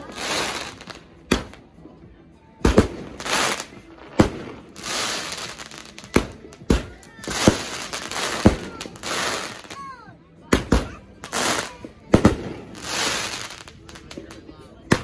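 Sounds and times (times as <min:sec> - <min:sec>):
crackling hiss of bursting stars: 0:00.0 - 0:01.0, 0:03.1 - 0:09.8, 0:12.6 - 0:14.1
firework bangs: 0:00.0 - 0:01.6, 0:02.6 - 0:09.8, 0:10.5 - 0:15.0.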